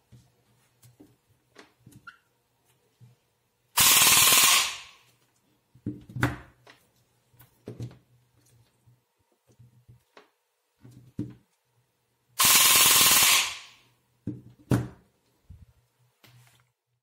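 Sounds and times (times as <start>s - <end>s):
airsoft gun full-auto burst: 3.8s - 5.0s, 12.4s - 13.8s.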